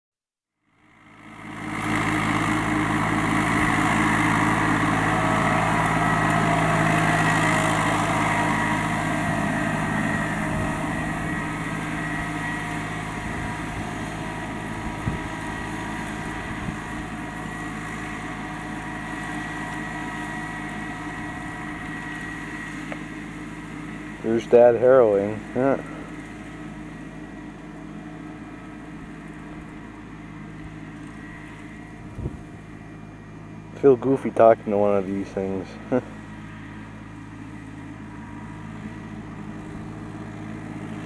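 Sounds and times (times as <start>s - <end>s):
tractor diesel engine running: 0.6s - 41.0s.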